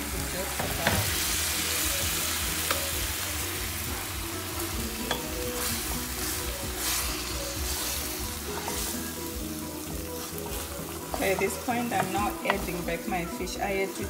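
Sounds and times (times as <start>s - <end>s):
sauce sizzling in a pan: 0.0s - 14.0s
spatula scraping a pan: 5.1s - 9.4s.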